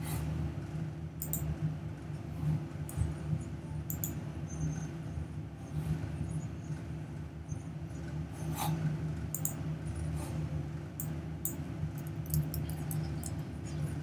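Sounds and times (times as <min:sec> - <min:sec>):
steady low hum: 0:00.0 - 0:14.0
computer mouse click: 0:01.2 - 0:01.5, 0:03.9 - 0:04.2, 0:09.3 - 0:09.6, 0:11.0 - 0:13.4.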